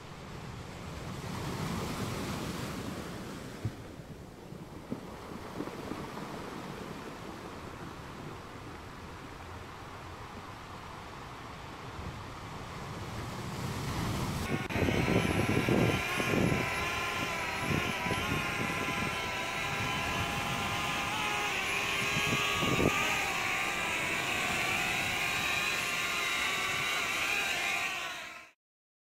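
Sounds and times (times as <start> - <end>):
wind rumble on microphone: 11.9 - 25.9
drone propellers whining: 14.0 - 28.6.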